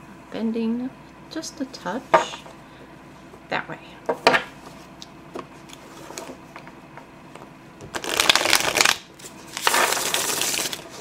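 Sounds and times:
cards fluttering in a shuffle: 7.9 - 11.0.

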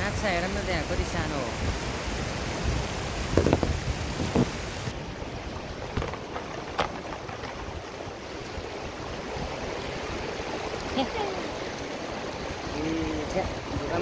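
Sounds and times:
river rushing over boulders: 0.0 - 14.0.

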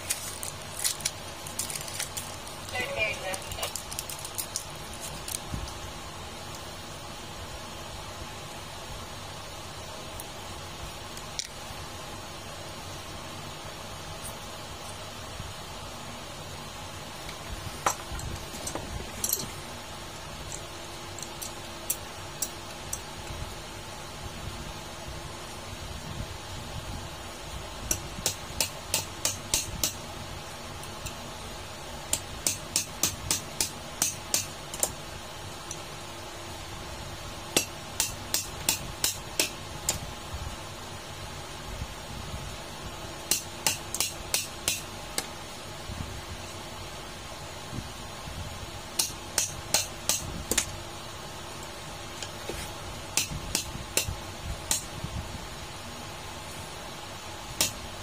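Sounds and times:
pliers tapping on metal wrench: 43.3 - 45.3.

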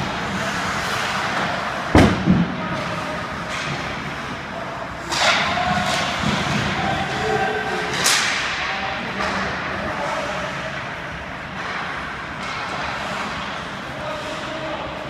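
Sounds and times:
skates scraping ice: 0.0 - 2.0, 2.6 - 15.0
hockey puck struck crack: 7.9 - 8.6.

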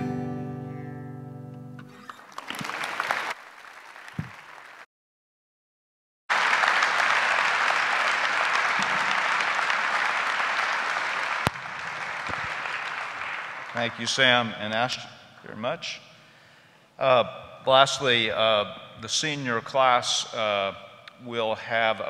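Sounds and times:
audience applauding: 1.9 - 4.9, 6.3 - 14.9.

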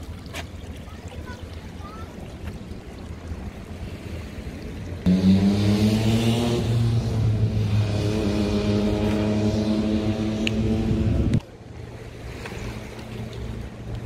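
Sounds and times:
engine humming: 5.0 - 14.0.

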